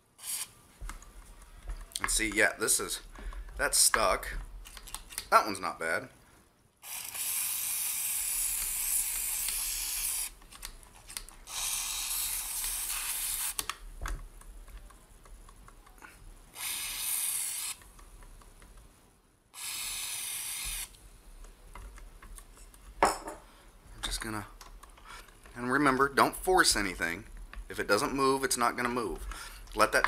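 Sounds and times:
aerosol spray hissing: 0:00.2 - 0:00.5, 0:06.8 - 0:10.4, 0:11.5 - 0:13.6, 0:16.5 - 0:17.8, 0:19.6 - 0:20.9.

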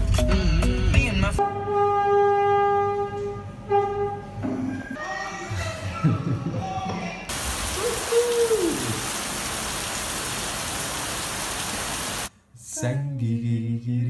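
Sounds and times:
heavy rain pouring: 0:07.3 - 0:12.3
short falling call: 0:07.5 - 0:09.4.

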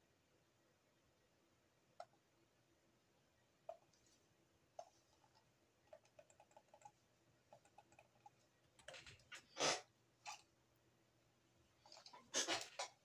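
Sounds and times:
computer mouse clicks: 0:04.8 - 0:09.2.

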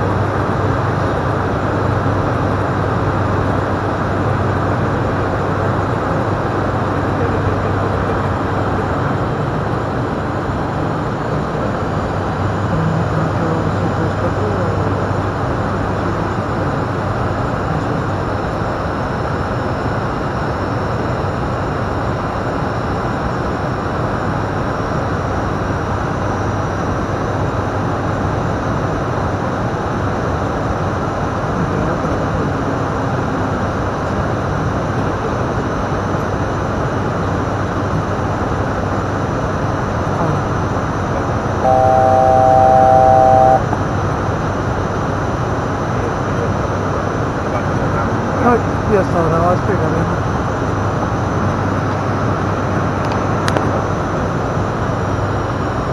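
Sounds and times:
constant low hum: 0:00.0 - 0:55.9
turboprop engines roaring: 0:00.0 - 0:55.9
three-note electronic cockpit tone: 0:41.6 - 0:43.8.

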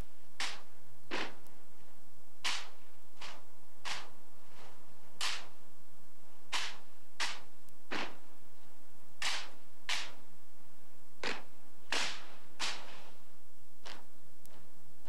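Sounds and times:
rifle slaps and snaps: 0:05.2 - 0:05.5.

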